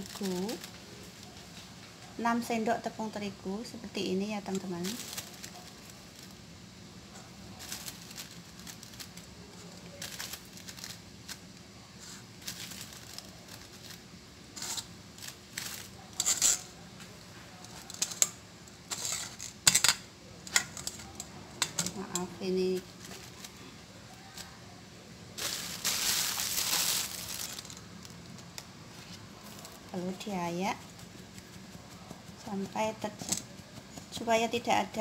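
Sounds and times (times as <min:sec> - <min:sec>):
spoon scraping and knocking on sieve: 0:14.5 - 0:14.9, 0:16.2 - 0:16.7.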